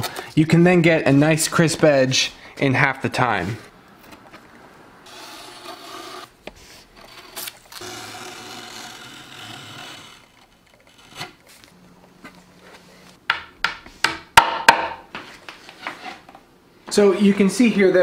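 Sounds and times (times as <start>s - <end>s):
blade scraping wood: 5.1s - 11.7s.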